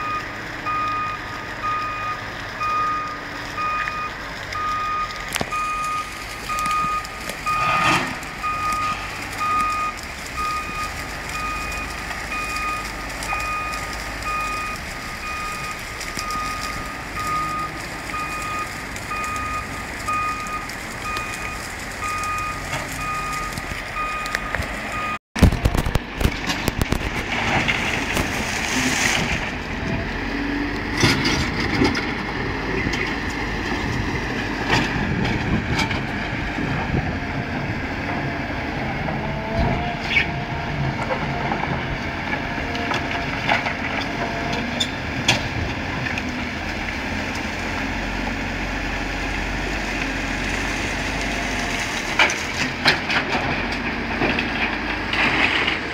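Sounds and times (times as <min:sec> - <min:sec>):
reversing alarm beeping: 0:00.0 - 0:25.2
diesel machinery engines running: 0:00.0 - 0:55.9
clanks of buckets and rock: 0:52.0 - 0:55.9.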